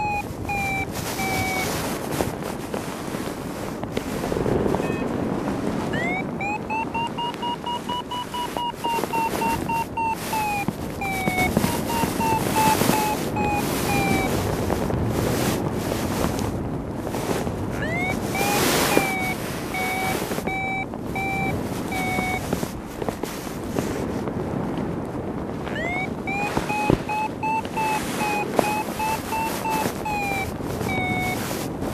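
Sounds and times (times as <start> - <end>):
variometer beeping: 0.0 - 2.1, 4.6 - 5.2, 5.9 - 14.7, 17.7 - 23.2, 25.7 - 31.9
wind rushing over microphone: 0.0 - 31.9.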